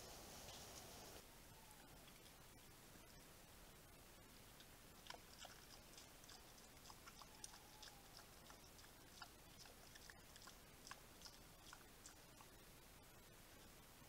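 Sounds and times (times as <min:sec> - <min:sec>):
steady hiss: 0:00.0 - 0:06.9, 0:07.9 - 0:14.0
boar rooting in dry leaves: 0:04.6 - 0:12.6.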